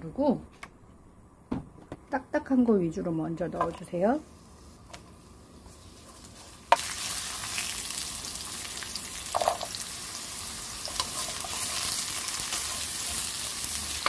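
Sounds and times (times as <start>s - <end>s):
vegetables sizzling in hot oil: 4.2s - 14.0s.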